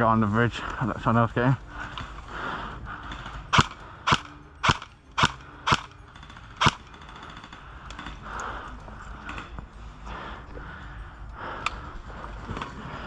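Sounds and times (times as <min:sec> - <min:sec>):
airsoft gun shots: 0:03.5 - 0:05.9, 0:06.6 - 0:06.8.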